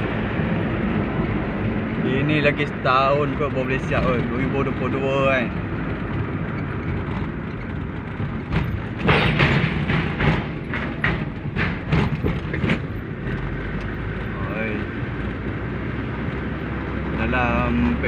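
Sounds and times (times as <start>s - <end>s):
car road noise rumble: 0.0s - 18.0s
irregular knocks and clunks: 5.6s - 15.0s.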